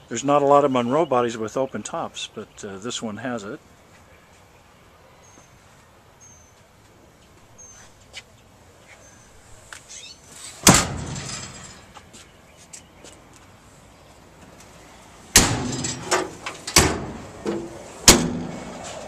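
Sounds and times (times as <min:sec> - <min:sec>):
metal compartment door slamming: 0:10.6 - 0:11.8, 0:15.3 - 0:18.8
latch clicks: 0:15.4 - 0:18.5.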